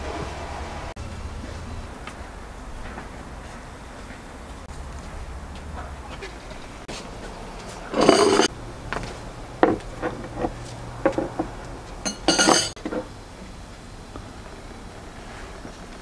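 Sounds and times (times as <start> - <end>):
scraping clatters: 6.8 - 13.1
dishes and cutlery clinking: 7.6 - 8.6, 11.1 - 12.8.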